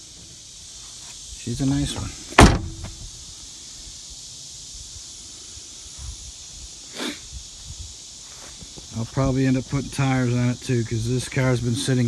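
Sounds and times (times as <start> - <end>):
insects hissing: 0.0 - 12.0
car door slamming: 2.3 - 3.0.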